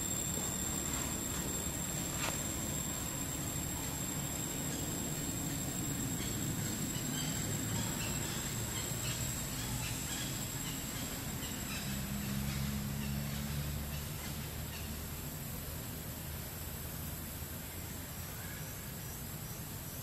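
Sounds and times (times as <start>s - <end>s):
low hum: 0.0s - 14.5s
high insect drone: 0.0s - 20.0s.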